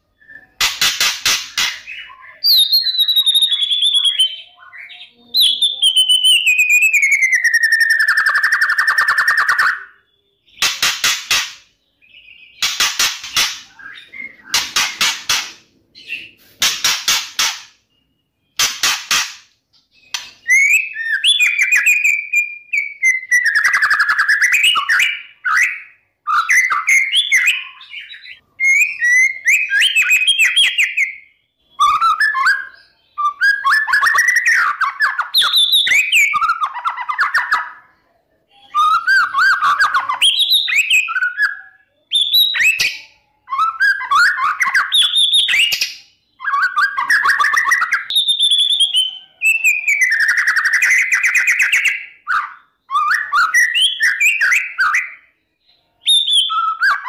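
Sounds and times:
songbird singing: 0.0 - 16.6, 17.4 - 38.0.

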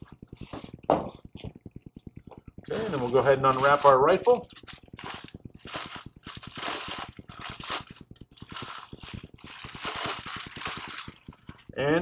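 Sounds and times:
plastic bag crinkling: 2.6 - 11.8.

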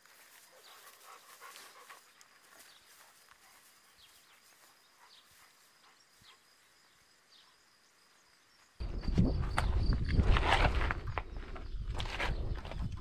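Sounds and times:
wind rumble on microphone: 8.8 - 13.0.

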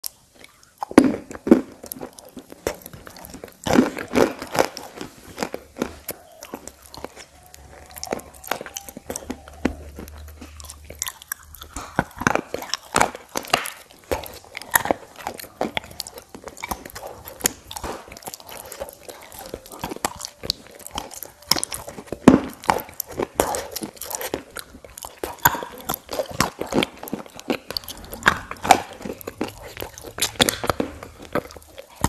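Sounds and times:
crunchy biting and chewing: 0.0 - 32.0.

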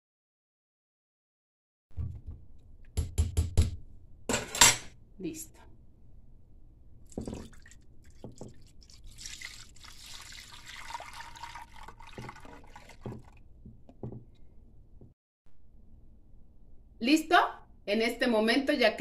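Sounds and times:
liquid pouring into glass dish: 7.1 - 13.4
soft knocks: 13.1 - 14.4.

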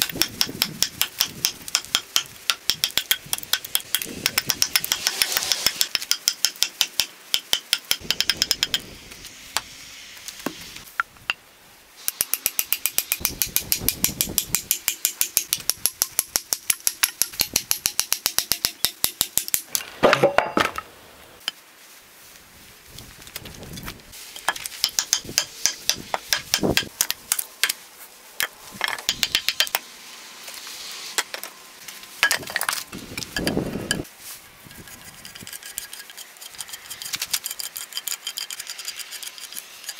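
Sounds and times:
axe chopping wood: 0.0 - 8.8.

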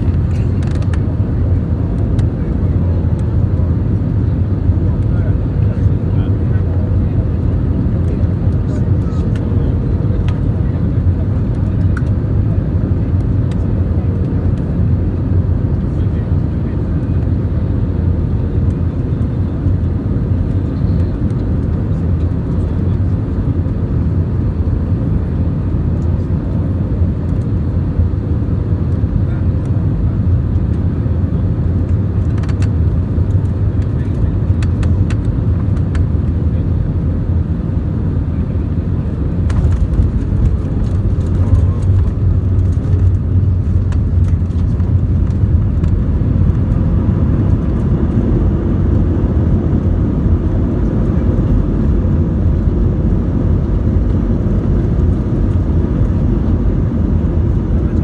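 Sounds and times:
airplane cabin engine rumble: 0.0 - 58.0
light rattling clicks: 32.2 - 36.0.

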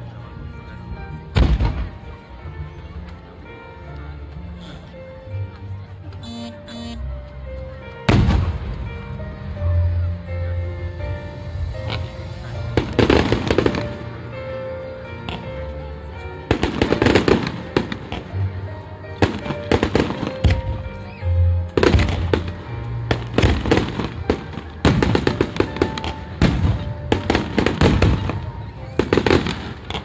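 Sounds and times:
music playing: 0.0 - 30.0
fireworks bangs and crackling: 1.2 - 2.2, 8.1 - 9.6, 11.0 - 15.7, 16.4 - 21.0, 21.6 - 30.0.

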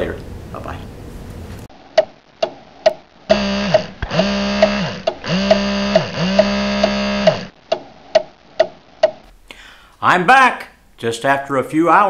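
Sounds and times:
buzzy synthesized tone: 3.3 - 7.5.

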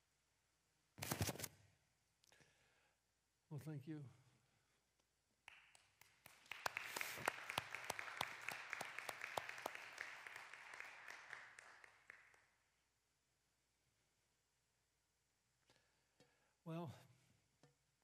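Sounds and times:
crowd applauding: 5.5 - 12.6.

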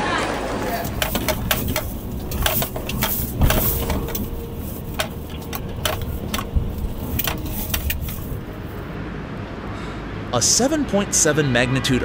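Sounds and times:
low rumble: 0.3 - 9.2
objects clicking and rattling: 0.6 - 8.8.

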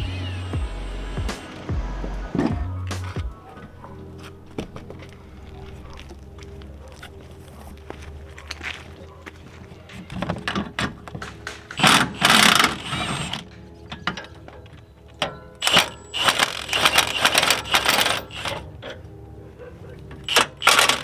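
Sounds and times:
background music: 0.0 - 21.0
impact wrench hammering: 11.8 - 13.4, 15.2 - 18.6, 20.2 - 21.0.

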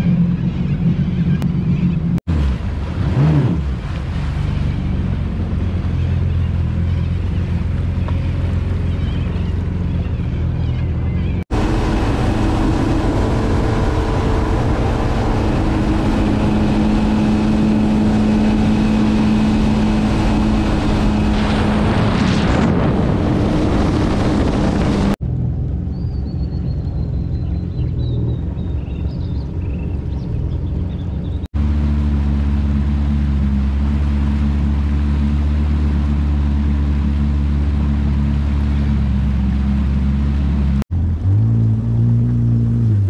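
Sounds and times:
jet ski engines running: 0.0 - 43.0
wind buffeting microphone: 4.9 - 31.4.

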